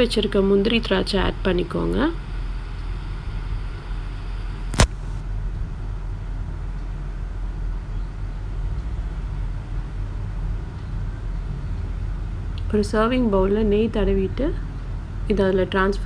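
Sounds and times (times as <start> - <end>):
steady low rumble: 0.0 - 16.0
sharp knock: 4.7 - 5.2.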